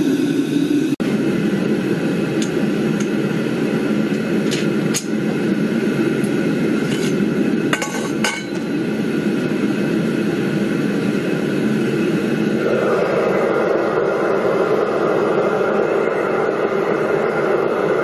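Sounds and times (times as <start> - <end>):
furnace burner roaring hiss: 0.0 - 18.0
metal bar clinking on furnace lid: 7.7 - 8.6.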